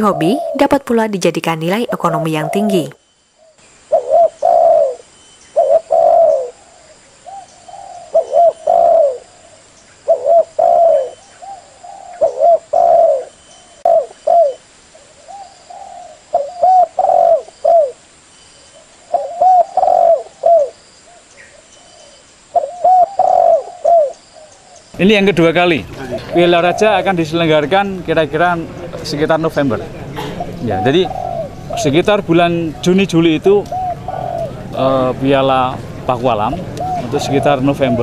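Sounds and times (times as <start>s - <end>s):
doves cooing: 0.0s - 0.9s, 1.6s - 3.0s, 3.8s - 18.1s, 18.8s - 24.8s, 25.6s - 38.0s.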